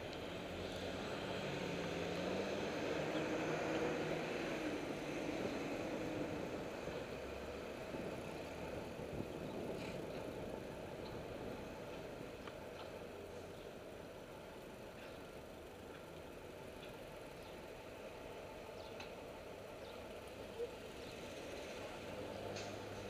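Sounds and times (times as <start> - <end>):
road and wind noise: 0.0 - 23.0
vehicle engine revving: 0.2 - 7.0.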